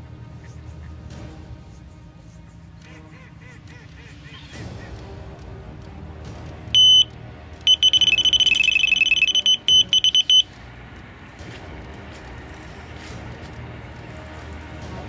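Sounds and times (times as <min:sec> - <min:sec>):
bite alarm bleeping: 0:06.8 - 0:07.1, 0:07.7 - 0:10.5.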